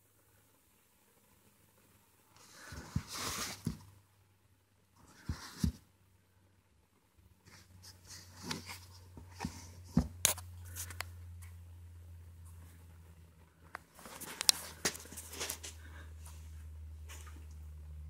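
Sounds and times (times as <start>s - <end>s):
low steady hum: 0.0s - 18.0s
rustling scrapes: 2.4s - 3.8s, 13.9s - 17.4s.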